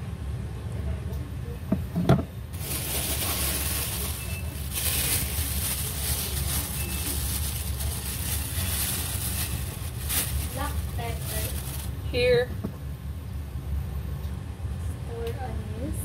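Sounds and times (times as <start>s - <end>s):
plastic bag crinkling: 2.5s - 12.0s.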